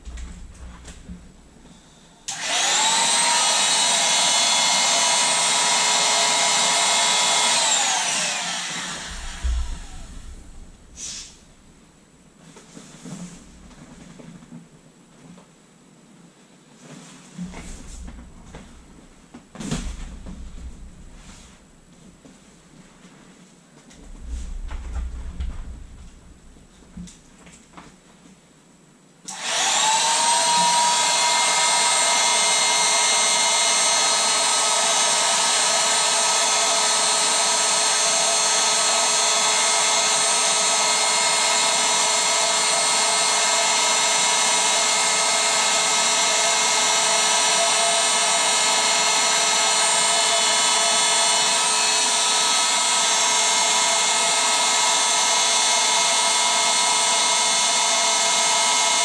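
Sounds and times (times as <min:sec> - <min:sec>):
electric air pump motor whining: 0:00.0 - 0:11.9, 0:17.4 - 0:21.7, 0:29.3 - 0:59.0.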